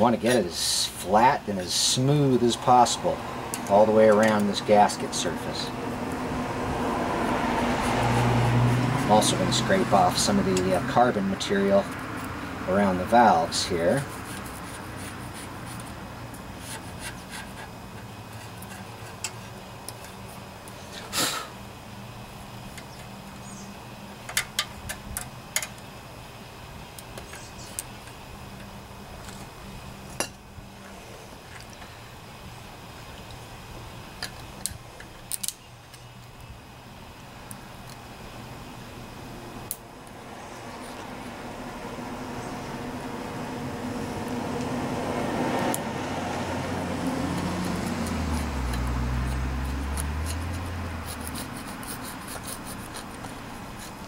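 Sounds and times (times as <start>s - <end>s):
low steady hum: 0.0s - 54.0s
metal scraper scraping engine block: 16.6s - 19.6s.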